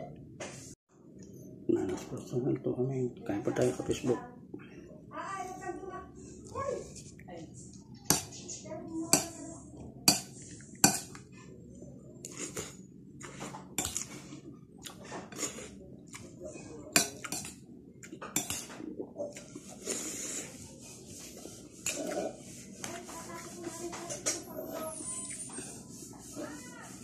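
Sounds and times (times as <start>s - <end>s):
cutlery clinking on ceramic bowl: 16.9s - 17.6s, 18.2s - 18.7s.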